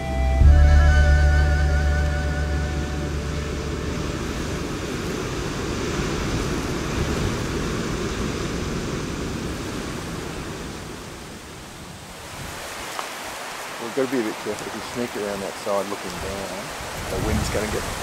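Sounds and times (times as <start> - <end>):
wind buffeting microphone: 2.2 - 12.9, 14.6 - 18.0.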